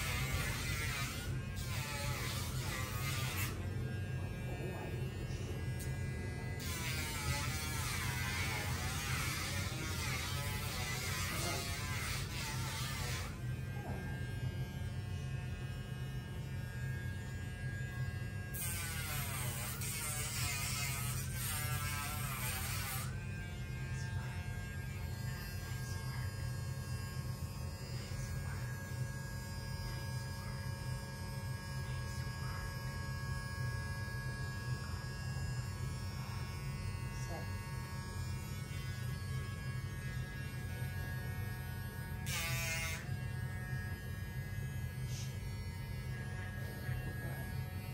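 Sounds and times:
rotary tool grinding toenails: 0:00.0 - 0:03.6, 0:18.5 - 0:23.1.

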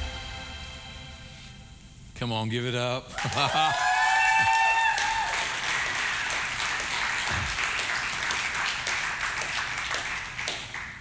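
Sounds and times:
congregation applauding: 0:03.2 - 0:11.0.

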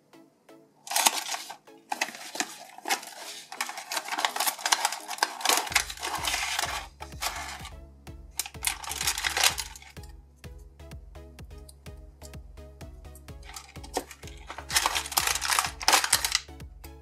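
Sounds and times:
background music: 0:00.0 - 0:17.0
packaging crinkling and rustling: 0:00.9 - 0:07.7, 0:08.4 - 0:10.0, 0:13.4 - 0:16.5.

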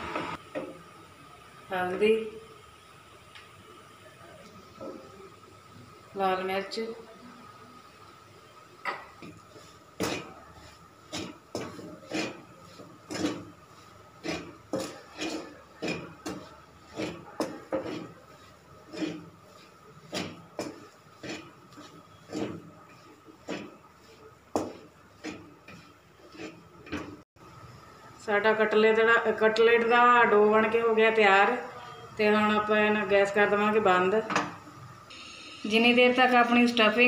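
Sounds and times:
wooden spatula scraping metal pan: 0:08.9 - 0:27.3.

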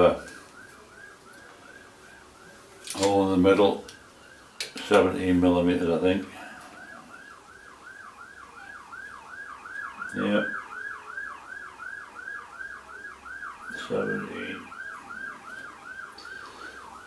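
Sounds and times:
electronic siren yelping: 0:06.4 - 0:17.0.

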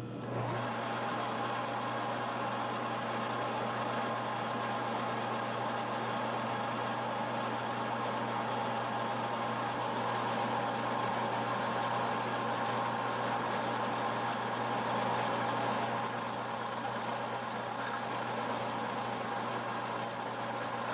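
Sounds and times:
metal lathe cutting: 0:11.4 - 0:14.8, 0:16.0 - 0:20.9.

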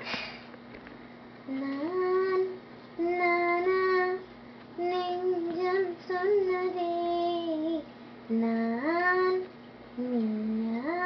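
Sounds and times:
girl singing long notes: 0:04.8 - 0:11.0.

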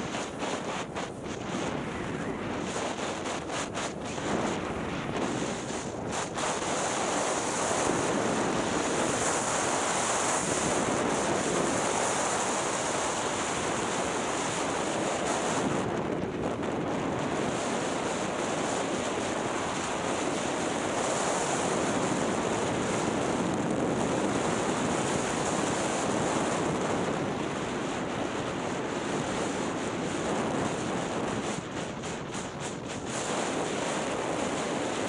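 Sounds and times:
skis hissing over snow: 0:00.0 - 0:15.9
wind blowing across microphone: 0:00.0 - 0:35.0.

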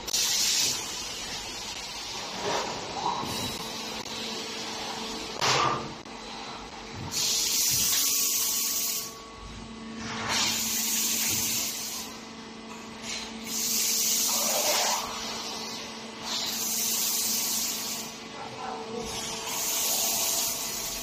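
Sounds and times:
machine hissing: 0:00.0 - 0:05.0, 0:07.0 - 0:09.2, 0:10.2 - 0:12.2, 0:13.0 - 0:18.2, 0:19.0 - 0:21.0
steady machine hum: 0:00.0 - 0:21.0.

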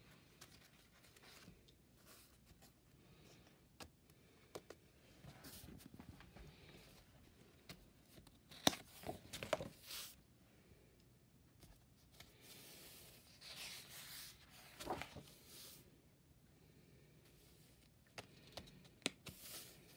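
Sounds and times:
paper pages turning: 0:00.1 - 0:02.6, 0:07.6 - 0:10.2, 0:12.1 - 0:15.8.

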